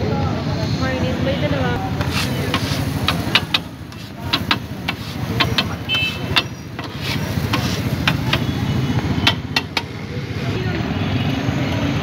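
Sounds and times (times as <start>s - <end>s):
metal scraper scraping on griddle: 2.0s - 8.6s.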